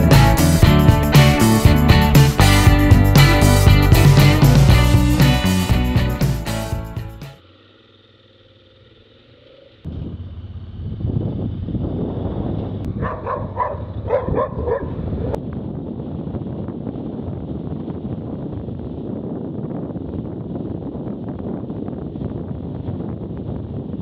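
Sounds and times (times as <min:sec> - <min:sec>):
motorcycle wind and road noise: 0:09.9 - 0:24.0
dog barking: 0:12.9 - 0:15.4.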